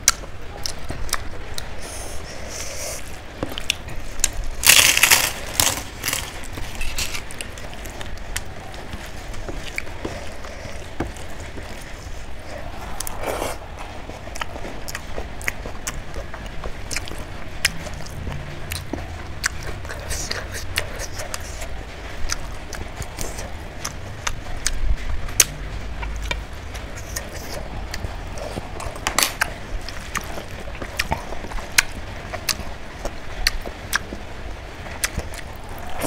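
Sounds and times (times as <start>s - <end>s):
person biting and chewing: 0.0s - 21.6s, 27.0s - 32.6s
loud crunch: 3.5s - 7.9s.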